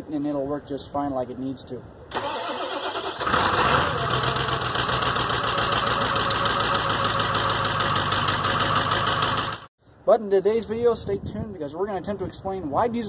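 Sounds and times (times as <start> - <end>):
diesel engine idling: 2.2 - 9.7.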